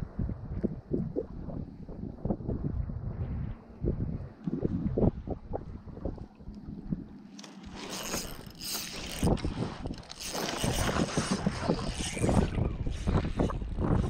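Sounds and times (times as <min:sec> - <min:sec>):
fishing reel whirring clicks: 0:07.3 - 0:12.6.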